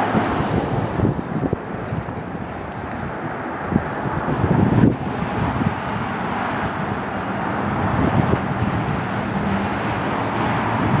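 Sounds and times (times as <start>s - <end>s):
low engine hum: 0.0s - 11.0s
street traffic: 0.0s - 11.0s.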